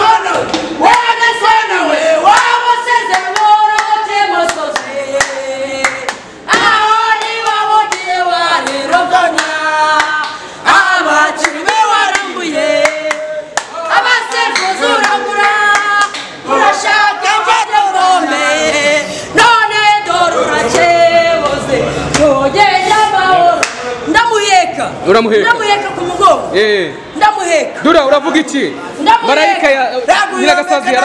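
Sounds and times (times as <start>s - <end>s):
man and woman chanting: 0.0s - 31.0s
sharp hand claps: 3.1s - 8.8s, 11.4s - 16.4s, 23.6s - 23.9s.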